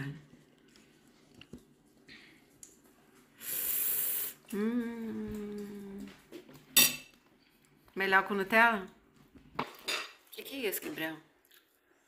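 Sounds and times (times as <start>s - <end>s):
breathy hiss: 3.3s - 4.6s
person humming: 3.7s - 6.2s.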